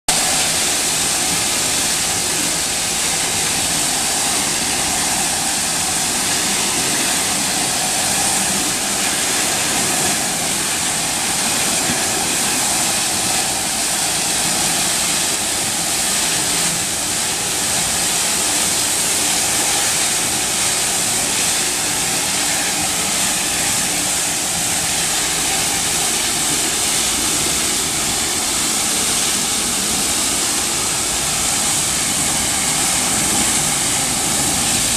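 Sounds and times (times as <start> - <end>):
water jets spraying with suction: 0.1 - 34.9.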